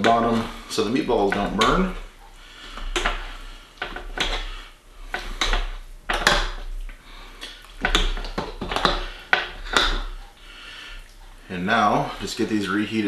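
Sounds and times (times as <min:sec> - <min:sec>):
spatula scraping pot: 0:00.0 - 0:06.8, 0:07.5 - 0:10.7.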